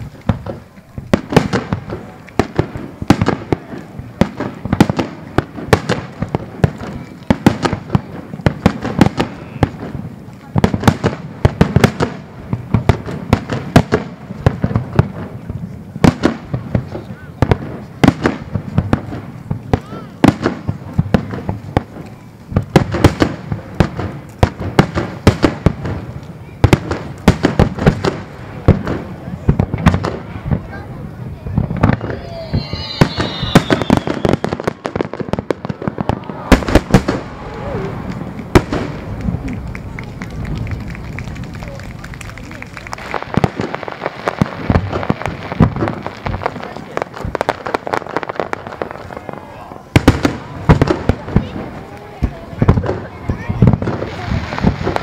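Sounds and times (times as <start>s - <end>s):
fireworks bursting in sharp bangs: 0.0s - 55.0s
firework shells bursting: 31.6s - 49.2s.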